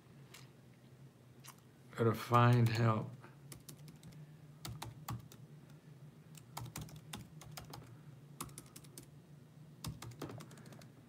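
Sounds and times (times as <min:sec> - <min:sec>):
faint low hum: 0:00.0 - 0:11.0
keyboard typing clicks: 0:06.3 - 0:09.1, 0:09.8 - 0:10.9.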